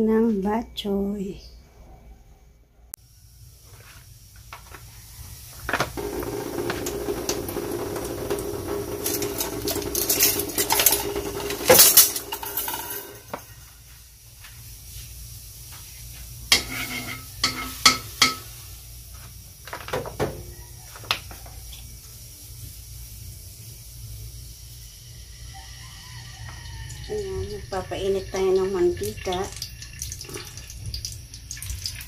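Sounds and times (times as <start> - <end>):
spatula and pans clinking on wok: 16.5 - 18.5.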